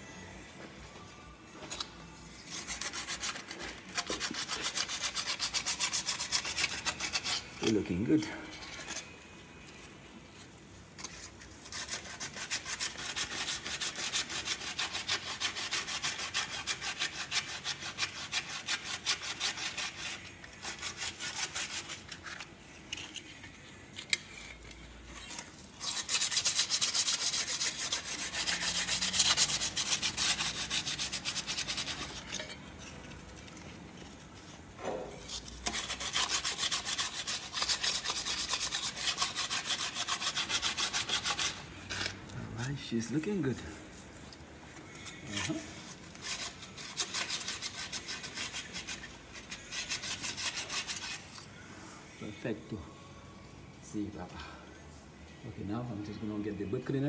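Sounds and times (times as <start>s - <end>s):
sandpaper rubbing on metal: 2.3s - 9.0s, 11.0s - 22.4s, 25.8s - 32.4s, 35.2s - 42.2s, 45.0s - 51.4s.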